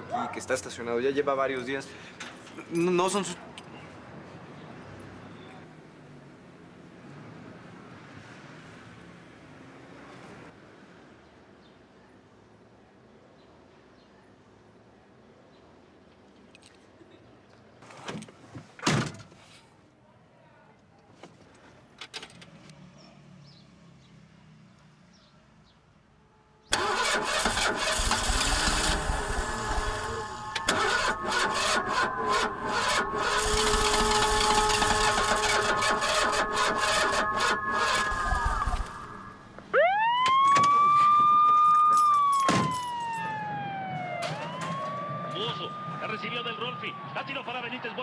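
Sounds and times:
car engine starting and running: 0:26.7 - 0:39.7.

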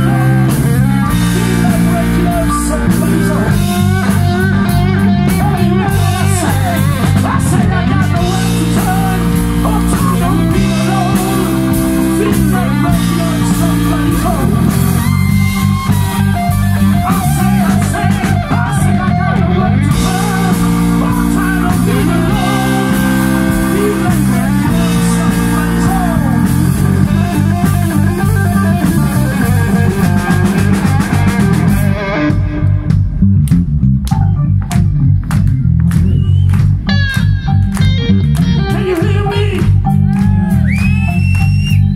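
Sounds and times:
bass guitar: 0:00.0 - 0:41.9
drum kit: 0:00.0 - 0:41.9
electric guitar: 0:00.0 - 0:41.9.

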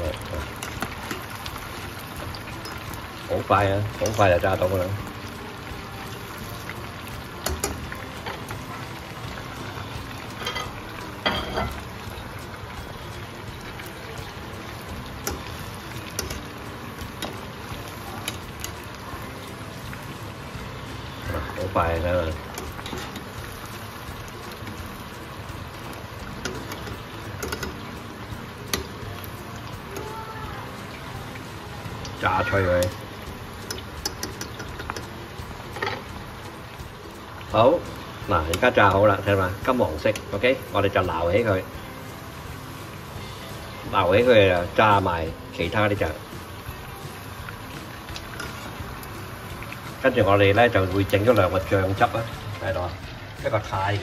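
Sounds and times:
chicken deep-frying in oil: 0:00.0 - 0:54.0
metal tongs clicking against pan: 0:00.2 - 0:01.6, 0:02.6 - 0:02.9, 0:04.0 - 0:04.3, 0:07.4 - 0:08.5, 0:15.2 - 0:19.0, 0:22.3 - 0:23.4, 0:25.8 - 0:27.9, 0:28.7 - 0:29.0, 0:32.0 - 0:35.1, 0:35.8 - 0:36.1.

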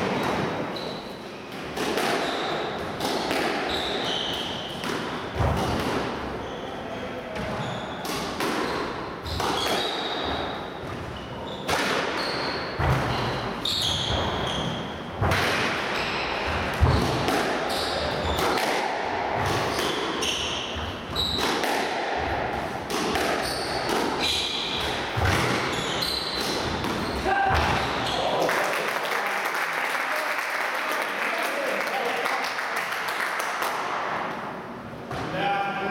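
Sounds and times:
squash ball struck by rackets: 0:01.6 - 0:06.2, 0:07.4 - 0:11.0, 0:11.6 - 0:27.9
shoes squeaking on wooden floor: 0:23.4 - 0:26.4.

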